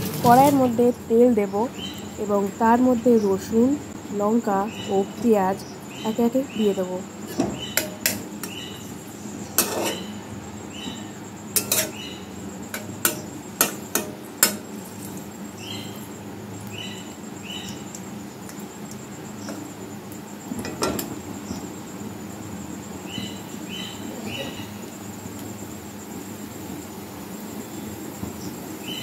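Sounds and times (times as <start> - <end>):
metal spatula scraping pan: 9.6 - 10.2.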